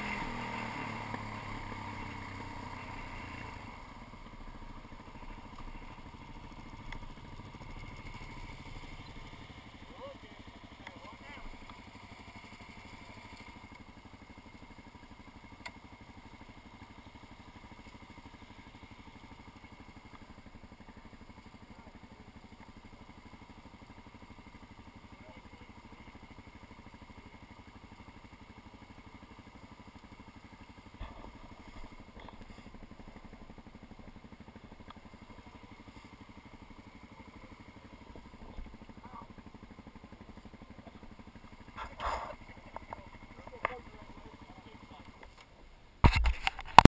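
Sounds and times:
motorcycle engine idling: 0.0 - 46.9.

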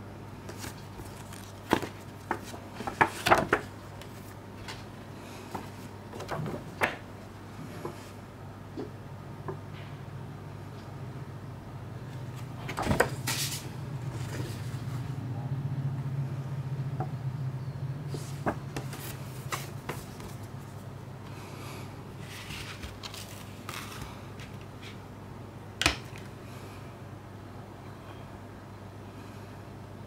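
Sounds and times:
paper rustling: 0.5 - 7.0, 12.2 - 15.1, 18.1 - 20.9, 22.2 - 25.0.

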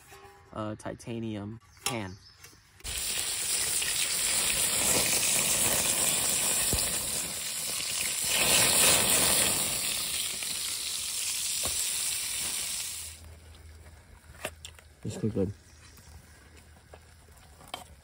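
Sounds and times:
steak sizzling in frying pan: 2.8 - 13.2.

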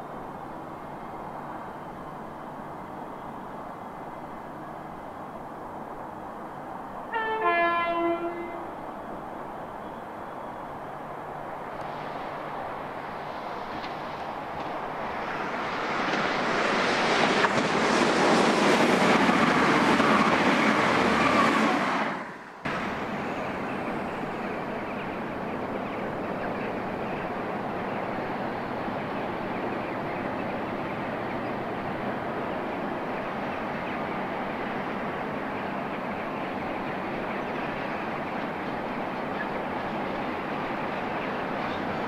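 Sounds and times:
diesel locomotive engine drone: 0.0 - 42.0
passenger train passing: 0.0 - 42.0.

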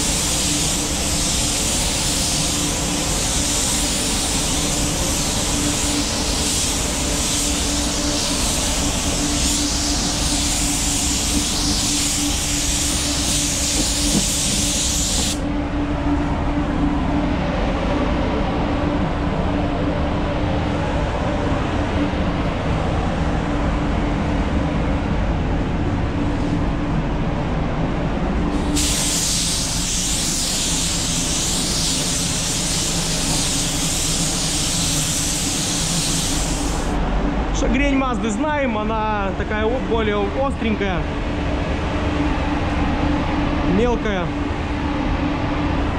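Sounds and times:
spray gun hissing: 0.0 - 15.4, 28.6 - 37.0
ventilation hum: 0.0 - 45.9.

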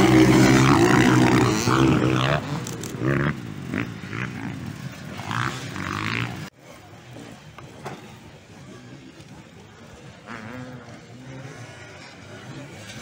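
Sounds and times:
distant motorcycle engine: 0.0 - 6.5
motorcycle engines revving: 0.0 - 13.0.

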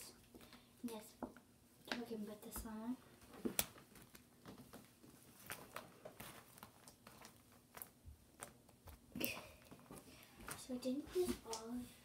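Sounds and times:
slime squishing by hand: 3.2 - 11.9.

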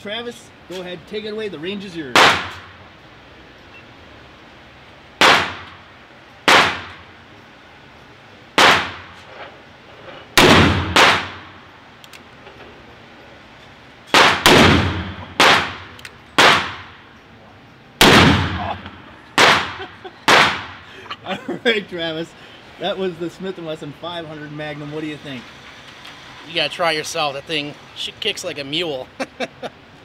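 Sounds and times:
gunshots with ringing echo: 2.2 - 2.8, 5.2 - 5.7, 6.5 - 7.0, 8.6 - 9.1, 10.4 - 11.6, 14.1 - 17.0, 18.0 - 20.8.

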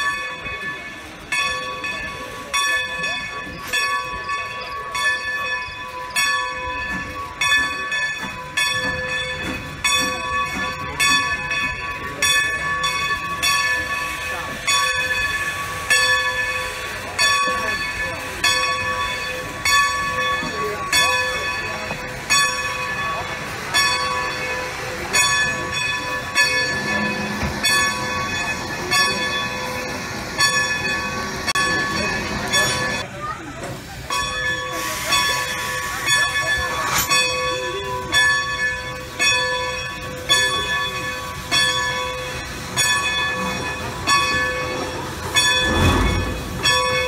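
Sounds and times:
locomotive bell ringing: 0.0 - 47.0
low rumble of moving engine: 44.9 - 47.0.

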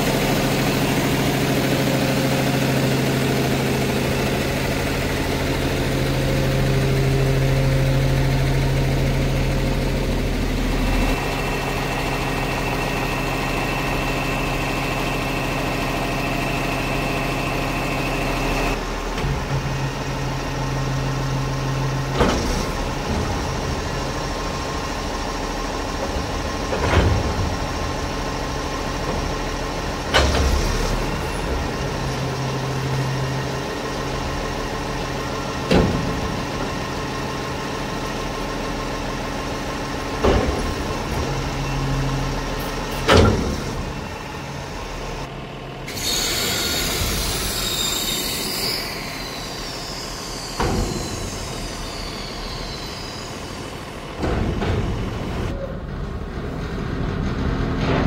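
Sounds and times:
diesel engine running: 0.0 - 58.0
hydraulic arm metal clanks: 40.2 - 44.2.

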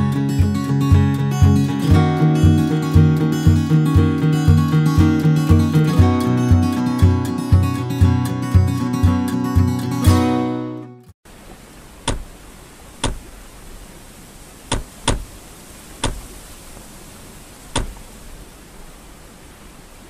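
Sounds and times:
strummed acoustic guitar music: 0.0 - 11.1
steady faint hiss: 11.3 - 20.0.

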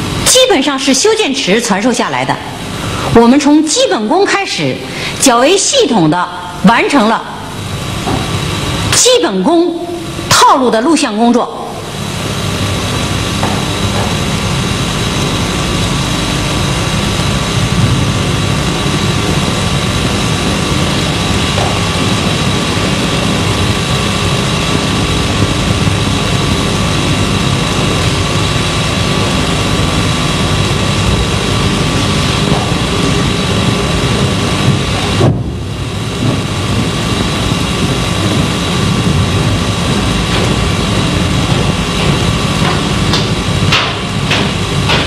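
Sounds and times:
low hum: 9.6 - 45.0.

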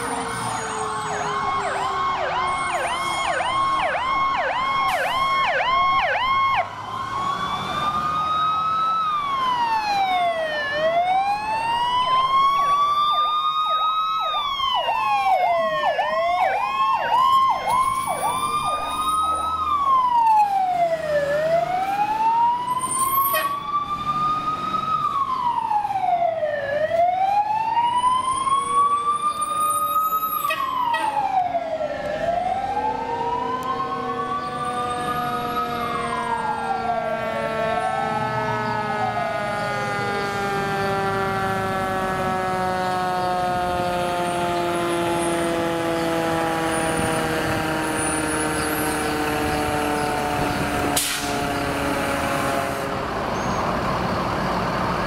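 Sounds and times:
fire truck sirens: 0.0 - 55.0.

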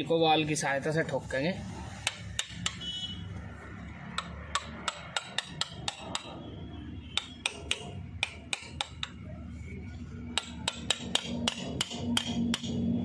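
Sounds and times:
hammer tapping on metal: 2.0 - 2.9, 4.0 - 6.4, 7.1 - 9.3, 10.3 - 12.9.

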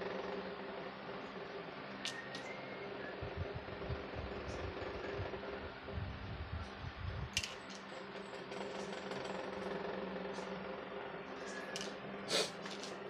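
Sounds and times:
mechanical hum: 0.0 - 13.0.

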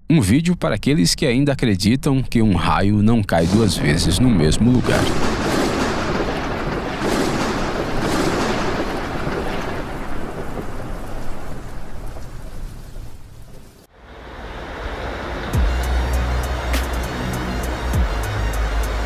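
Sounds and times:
rolling thunder: 3.4 - 13.9
thunder cracks: 3.4 - 13.9.

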